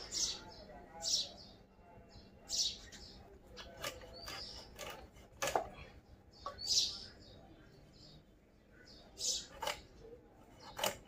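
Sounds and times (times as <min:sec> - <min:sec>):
birds chirping: 0:00.0 - 0:11.0
blade clicks and scrapes on steel bowl: 0:03.6 - 0:05.8, 0:09.3 - 0:11.0.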